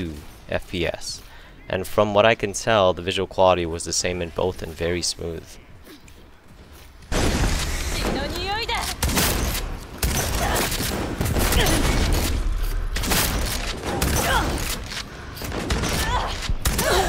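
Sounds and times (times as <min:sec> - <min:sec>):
video game gunfire: 0:07.1 - 0:17.0.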